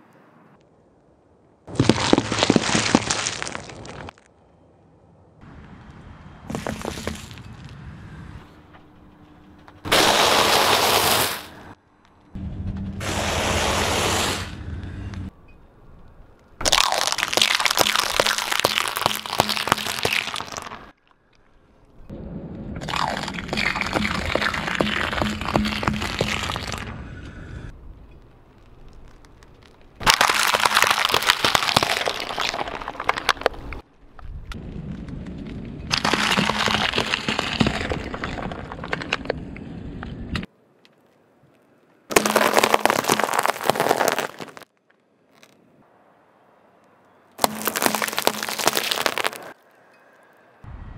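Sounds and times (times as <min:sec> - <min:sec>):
eggshells cracking: 0:01.8 - 0:04.2, 0:16.6 - 0:21.0, 0:22.8 - 0:26.8, 0:28.6 - 0:33.8, 0:35.9 - 0:39.3, 0:42.1 - 0:45.5, 0:47.4 - 0:49.6
tyre crunching foil-wrapped candy: 0:16.6 - 0:20.8, 0:30.0 - 0:33.5, 0:42.1 - 0:44.7, 0:47.4 - 0:49.5
tyre crushing cheese puffs: 0:42.1 - 0:44.8, 0:47.4 - 0:49.5.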